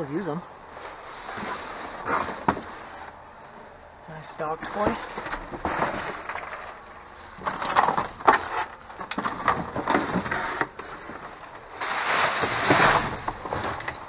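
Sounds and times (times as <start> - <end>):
trash items clattering: 4.5 - 14.0
loud rustle: 9.4 - 14.0.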